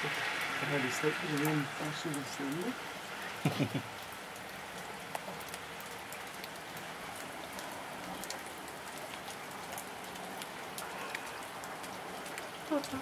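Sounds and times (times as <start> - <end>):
raindrops ticking: 0.0 - 13.0
steady rainfall hiss: 0.0 - 13.0.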